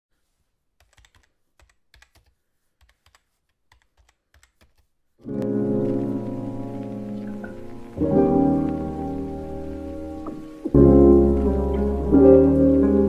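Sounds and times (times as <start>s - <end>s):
faint keyboard typing clicks: 0.8s - 8.2s
background music with sustained notes: 5.2s - 13.0s.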